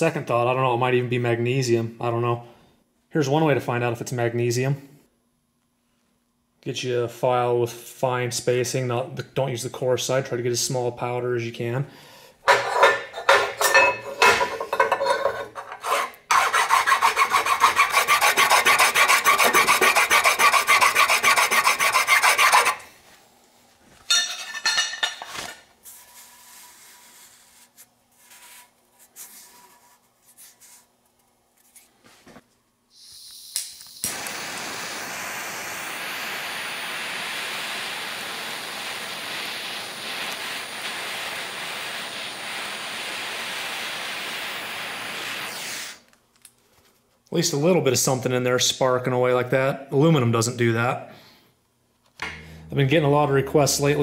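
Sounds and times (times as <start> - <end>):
hand file rasping on metal: 15.0 - 22.8
gas torch hissing: 32.9 - 46.1.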